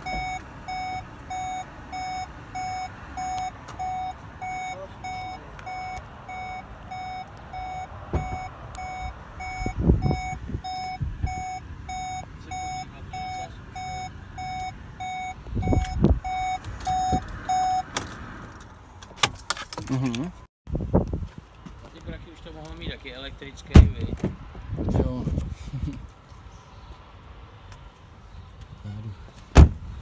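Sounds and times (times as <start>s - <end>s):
dashboard warning chime beeping: 0.0s - 17.9s.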